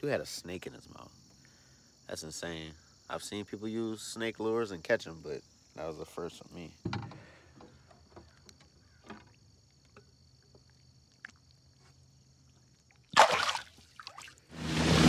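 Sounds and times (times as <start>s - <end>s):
fish splashing in water: 12.7s - 15.0s
water rushing: 13.1s - 15.0s.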